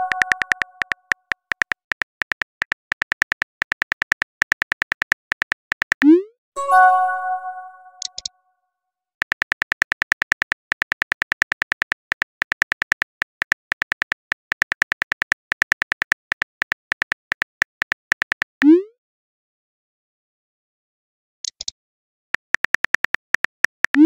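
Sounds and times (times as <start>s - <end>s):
phone ringing tone: 0.0s - 1.1s, 6.6s - 8.2s
phone keyboard clicks: 0.0s - 6.1s, 8.0s - 8.3s, 9.2s - 18.6s, 22.4s - 24.0s.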